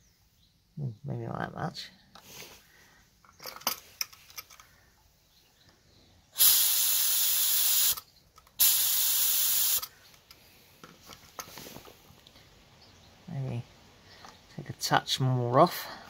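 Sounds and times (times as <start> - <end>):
spray gun air hissing: 6.4 - 8.0, 8.6 - 9.9.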